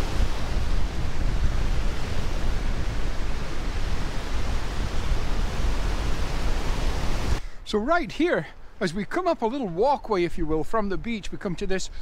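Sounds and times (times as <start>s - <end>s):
surf breaking on shore: 0.0s - 7.4s
wind buffeting microphone: 0.0s - 7.4s.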